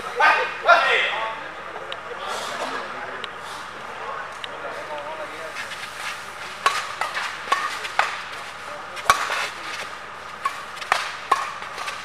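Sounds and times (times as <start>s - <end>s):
crowd background noise: 0.0s - 12.0s
badminton racket hitting shuttlecock: 6.0s - 12.0s.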